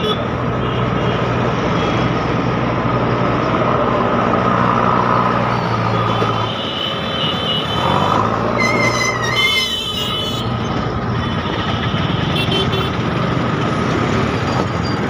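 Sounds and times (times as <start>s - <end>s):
road and traffic noise: 0.0s - 15.0s
high-pitched vehicle horn: 6.4s - 10.6s.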